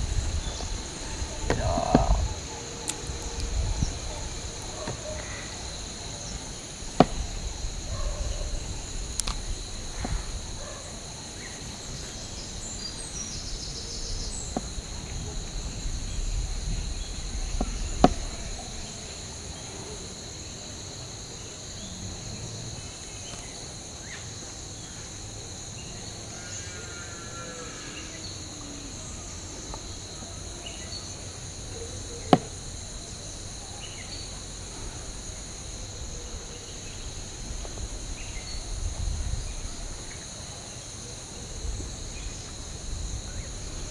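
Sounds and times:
high-pitched insect drone: 0.0 - 10.4, 25.9 - 43.9
sharp knocks: 1.5 - 2.3.

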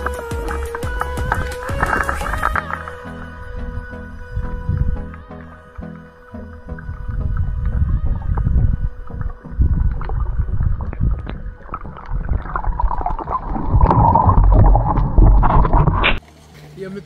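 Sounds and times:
underwater rumble of moving water: 6.4 - 16.2.

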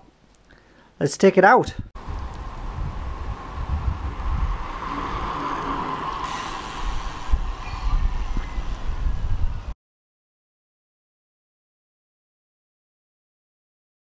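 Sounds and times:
wind buffeting microphone: 1.7 - 9.8
background hiss: 4.7 - 9.7.

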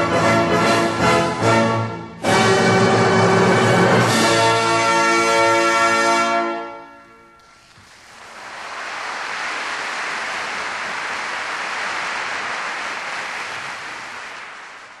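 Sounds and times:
audience applauding: 7.4 - 15.0.

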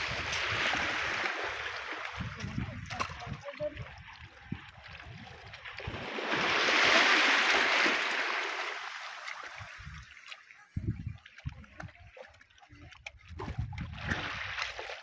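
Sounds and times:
surf washing over rocks: 5.8 - 9.9.

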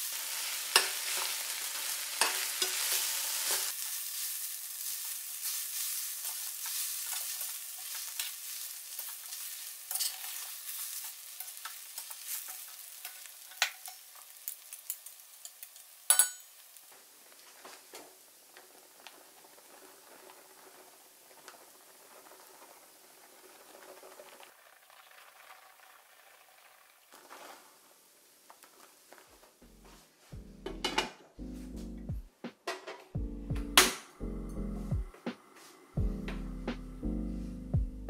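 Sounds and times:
fried rice sizzling in a pan: 0.0 - 29.6
metal spatula scraping a pan: 0.1 - 16.4
spatula clinking against pan: 8.9 - 16.5.

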